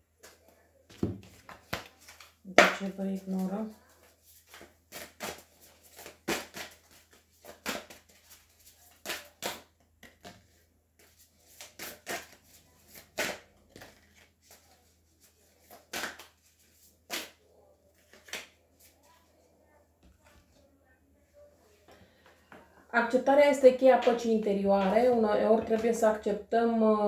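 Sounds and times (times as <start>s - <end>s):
cards clicking and slapping on table: 0.2s - 2.8s, 4.5s - 14.6s, 15.6s - 16.4s, 18.1s - 18.6s.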